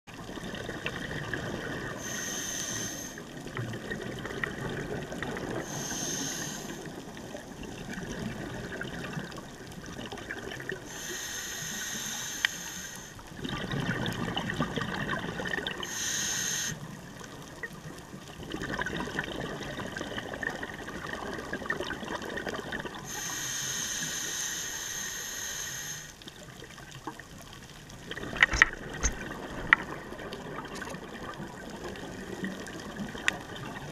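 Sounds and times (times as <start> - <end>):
rumbling exhaled bubbles: 0.1 - 2.0, 3.3 - 5.8, 6.8 - 10.9, 13.2 - 15.9, 16.8 - 23.1, 26.3 - 33.9
regulator hissing inhalations: 2.0 - 3.3, 5.6 - 7.0, 10.9 - 13.2, 15.8 - 16.9, 23.1 - 26.2.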